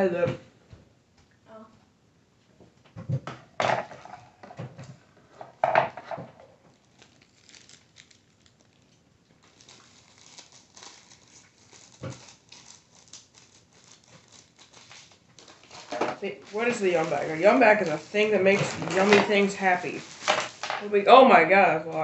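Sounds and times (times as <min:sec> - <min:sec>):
plastic wrappers crinkling: 0:06.6 - 0:21.5.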